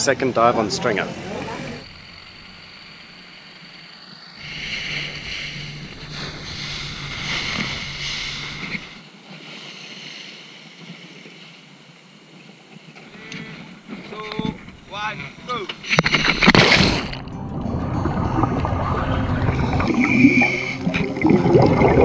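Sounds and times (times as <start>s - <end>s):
outboard motors droning: 0.0s - 16.5s, 17.1s - 22.0s
wind on microphone: 4.4s - 9.0s
water rushing along hull: 13.6s - 22.0s.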